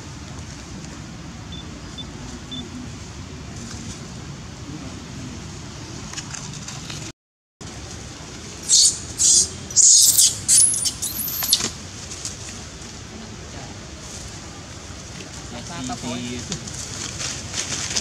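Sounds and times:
baby monkey screaming: 0:08.6 - 0:11.7.

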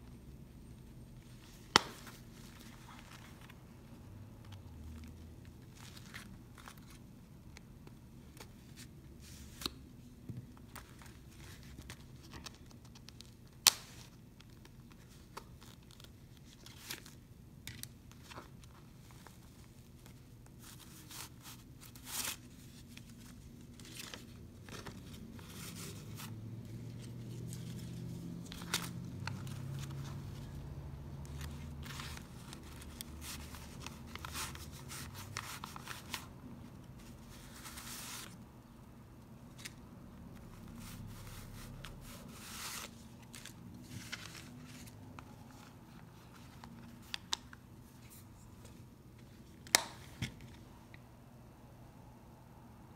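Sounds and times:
paper bills rustling: 0:40.4 - 0:47.6
cards sliding in wallet slots: 0:40.4 - 0:48.4.

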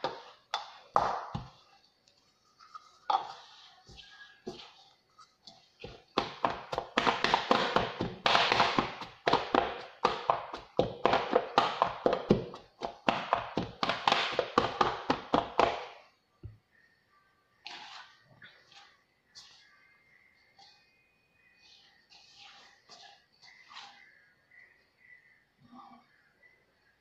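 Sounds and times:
hands rubbing mixture in metal bowl: 0:00.0 - 0:09.3, 0:21.7 - 0:24.2.

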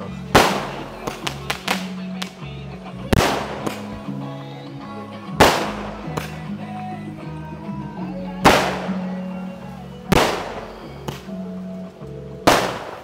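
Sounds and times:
background music with bass line: 0:00.0 - 0:13.0
sharp loud bangs: 0:00.4 - 0:01.9, 0:03.2 - 0:03.9, 0:05.4 - 0:06.3.

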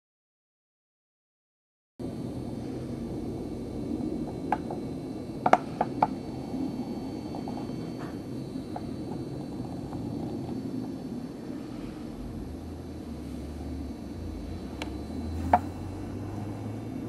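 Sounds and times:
low background rumble: 0:02.0 - 0:17.0
faint ticks: 0:14.7 - 0:15.8.

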